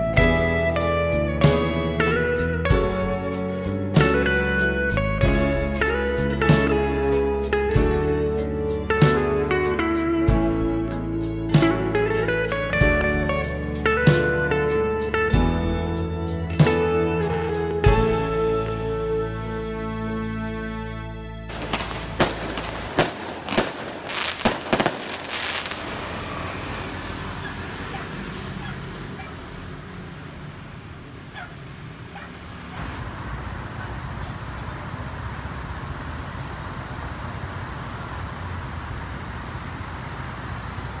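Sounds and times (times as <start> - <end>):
electric guitar music: 0.0 - 25.8
street ambience: 0.0 - 41.0
sharp bangs: 21.5 - 27.7.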